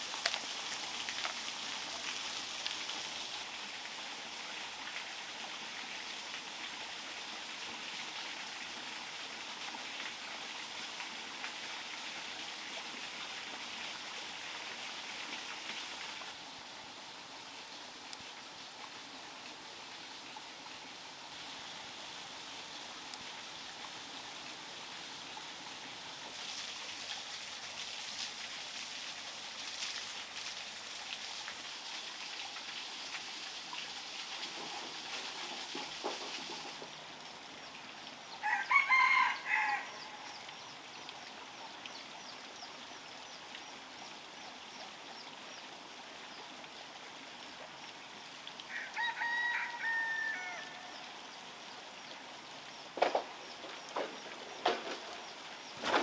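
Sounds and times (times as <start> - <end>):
bamboo tube hissing in embers: 26.2 - 37.0
rooster crowing: 38.4 - 40.1, 48.7 - 51.0.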